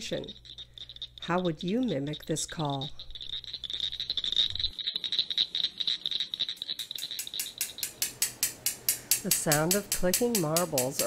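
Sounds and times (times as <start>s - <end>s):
frog calling with clicks: 0.0s - 8.1s
glass marbles clicking together: 0.0s - 11.0s.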